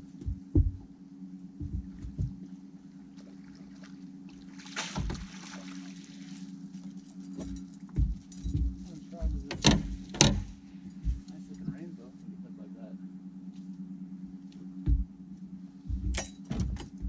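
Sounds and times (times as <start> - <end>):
boat motor running: 0.0 - 17.0
water splashing: 3.2 - 6.5.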